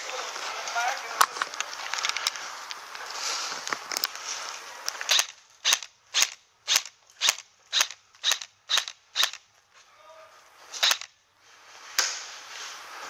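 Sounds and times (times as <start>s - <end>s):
airsoft gun shots: 5.0s - 9.4s, 10.8s - 11.1s.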